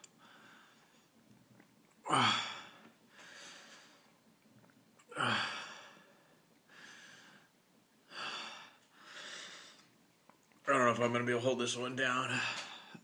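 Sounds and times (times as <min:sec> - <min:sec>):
soft breath: 0:00.1 - 0:01.2, 0:02.4 - 0:04.2, 0:05.2 - 0:10.0.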